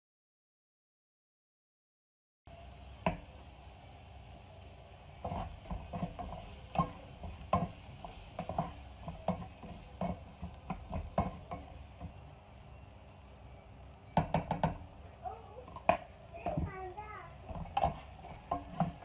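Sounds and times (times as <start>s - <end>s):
onions frying sizzle: 2.5s - 19.0s
wooden spatula scraping a frying pan: 5.2s - 12.2s, 15.6s - 19.0s.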